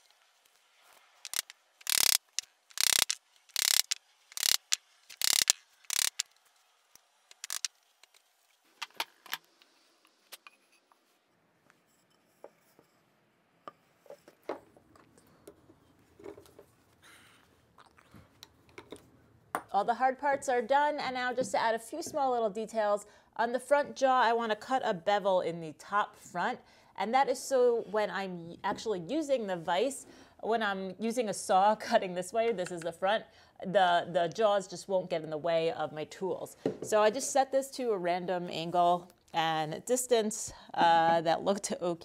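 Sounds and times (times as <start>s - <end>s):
clicks and knocks of fitting parts: 1.2s - 6.3s, 7.3s - 8.2s.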